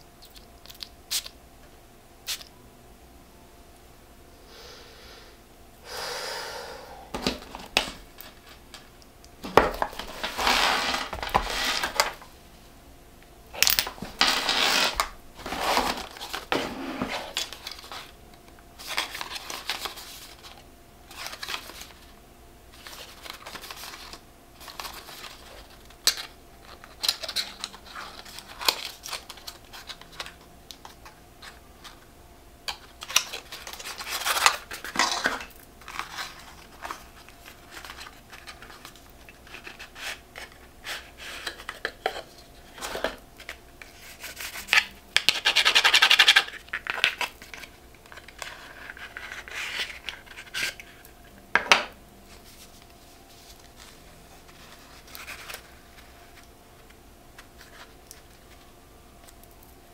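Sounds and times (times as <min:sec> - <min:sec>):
packaging rustling: 0:07.2 - 0:12.3, 0:13.7 - 0:18.2, 0:18.8 - 0:22.1, 0:22.8 - 0:32.0, 0:32.7 - 0:51.0, 0:52.4 - 0:58.6.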